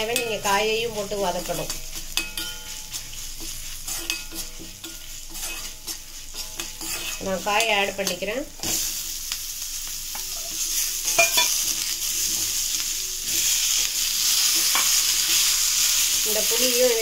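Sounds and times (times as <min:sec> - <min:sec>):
vegetables sizzling in hot oil: 0:00.0 - 0:17.0
steel spoon clicking on pan: 0:01.5 - 0:03.0, 0:11.1 - 0:11.8.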